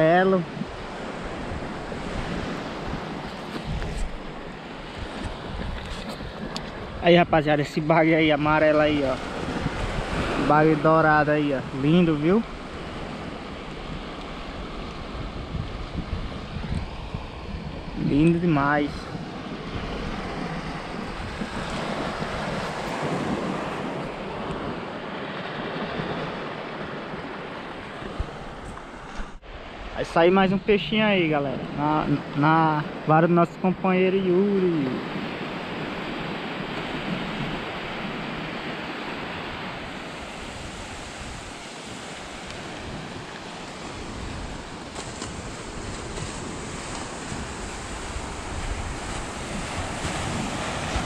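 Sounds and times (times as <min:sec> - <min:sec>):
wind noise on microphone: 0:00.0 - 0:32.8, 0:34.8 - 0:51.0
surf washing up a beach: 0:00.0 - 0:51.0.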